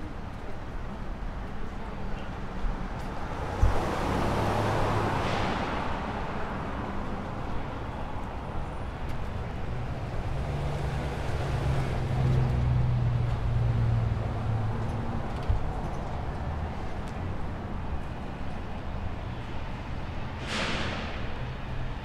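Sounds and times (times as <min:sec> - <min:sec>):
vehicle engine hum: 0:00.1 - 0:20.6
car passing: 0:03.1 - 0:07.5.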